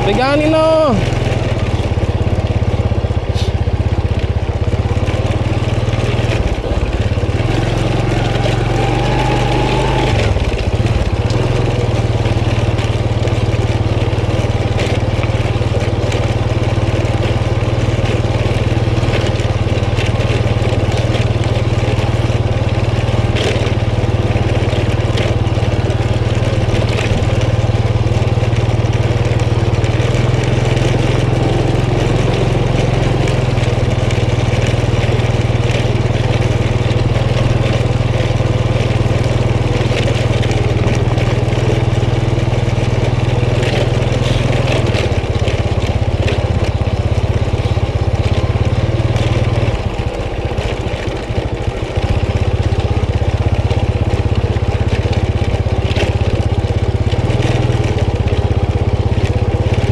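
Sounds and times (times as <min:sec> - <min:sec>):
clicks and knocks on dirt track: 0:00.0 - 0:59.9
scooter engine running: 0:00.0 - 0:59.9.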